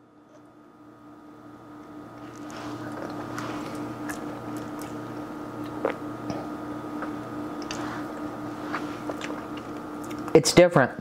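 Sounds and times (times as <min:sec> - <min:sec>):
steady low hum: 0:00.0 - 0:11.0
wet mouth sounds tasting: 0:02.2 - 0:10.4.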